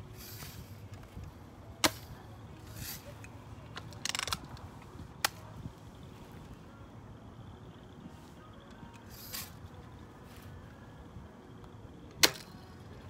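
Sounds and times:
gun lever clicking: 3.7s - 4.6s.

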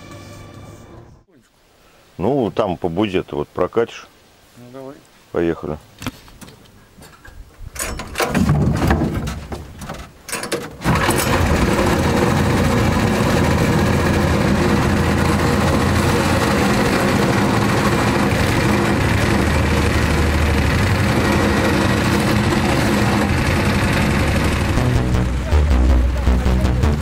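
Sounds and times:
engine sputtering and starting: 10.5s - 25.5s.

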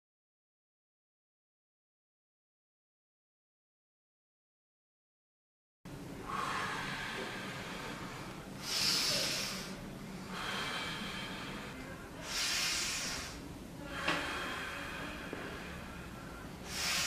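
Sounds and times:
faint low hum: 5.9s - 17.0s
man breathing deeply through mouth: 6.2s - 17.0s.

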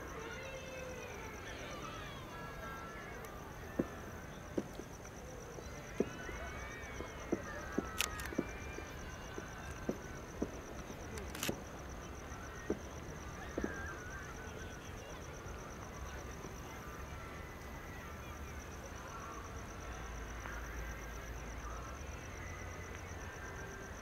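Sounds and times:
distant fireworks pops: 2.7s - 15.4s.

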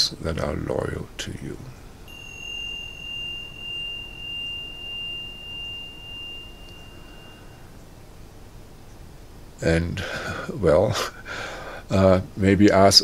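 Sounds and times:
high ringing chime tone: 2.0s - 8.9s.

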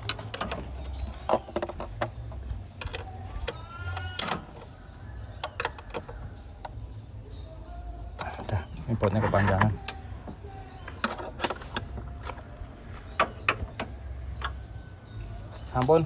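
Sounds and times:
metal bolt clicking and clinking: 2.7s - 4.7s, 5.4s - 6.2s.

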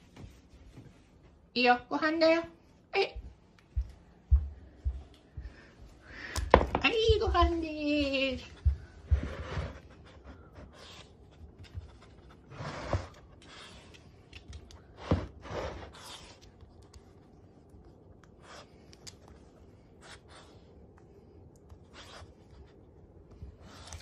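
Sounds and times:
dog sniffing and snuffling: 7.0s - 24.0s.

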